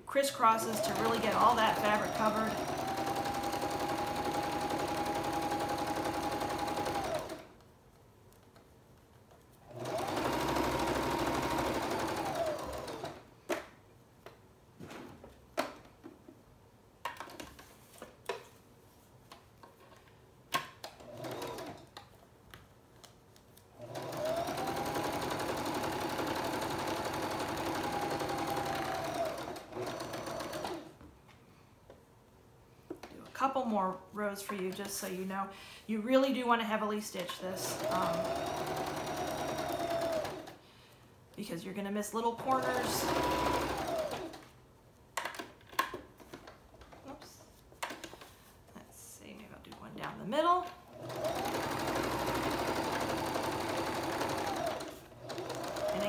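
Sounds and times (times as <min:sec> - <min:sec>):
electric sewing machine whine: 0:00.3 - 0:07.5, 0:09.6 - 0:13.2, 0:21.0 - 0:21.9, 0:23.8 - 0:30.9, 0:37.5 - 0:40.6, 0:42.4 - 0:44.5, 0:50.9 - 0:56.0.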